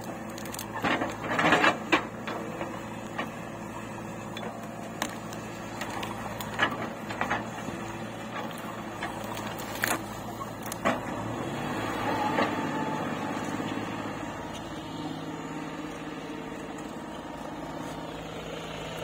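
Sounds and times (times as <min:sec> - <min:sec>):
crunching and knocks: 0:00.0 - 0:03.5, 0:04.3 - 0:11.4
diesel engine running: 0:00.0 - 0:19.0
bucket digging into soil and roots: 0:04.5 - 0:11.6.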